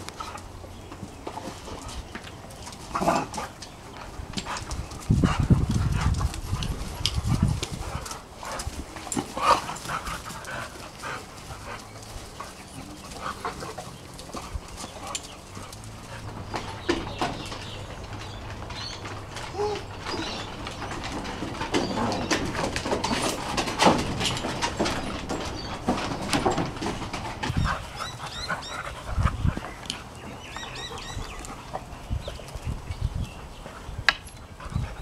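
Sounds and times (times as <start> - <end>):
dogs scuffling: 0.0 - 35.0
patter of paws: 0.0 - 35.0
dogs growling: 2.8 - 3.6, 7.3 - 16.9.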